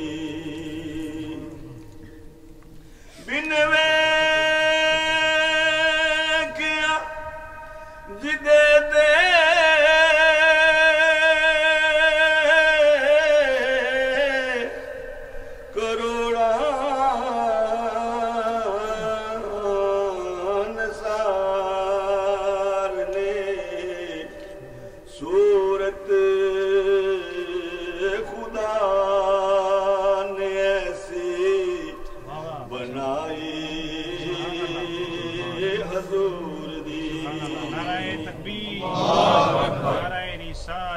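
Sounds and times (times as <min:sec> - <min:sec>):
man chanting into a microphone: 0:00.0 - 0:02.2, 0:03.2 - 0:40.9
short breaths: 0:02.8 - 0:03.3, 0:15.3 - 0:15.7.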